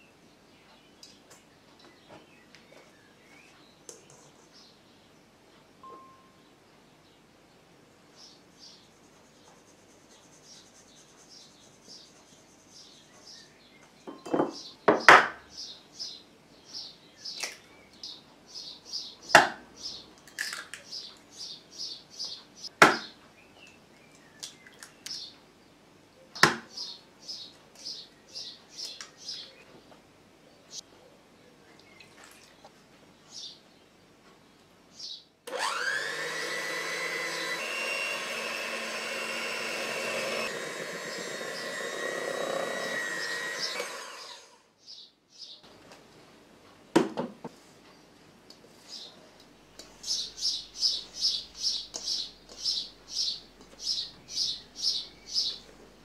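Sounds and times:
small bird chirping: 8.2s - 14.8s, 48.8s - 56.0s.

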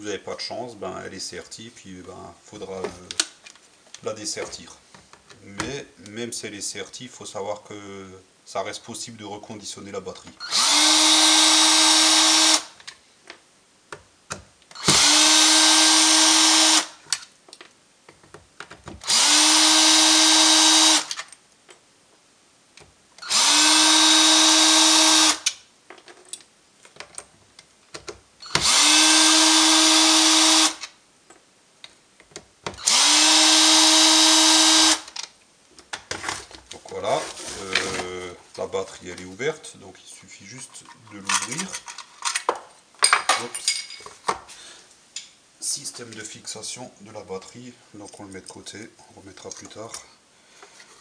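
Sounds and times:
cordless drill whining: 10.4s - 12.7s, 14.8s - 16.9s, 19.0s - 21.2s, 23.2s - 25.5s, 28.4s - 30.9s, 32.8s - 35.2s.

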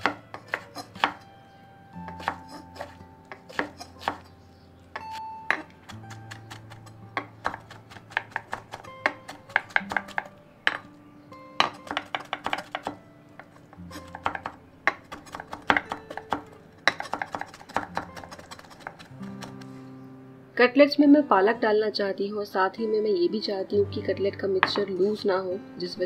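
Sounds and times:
knife chopping on wooden board: 0.0s - 1.2s, 2.1s - 4.3s, 5.0s - 10.8s, 11.6s - 19.6s
background music: 0.0s - 26.0s.

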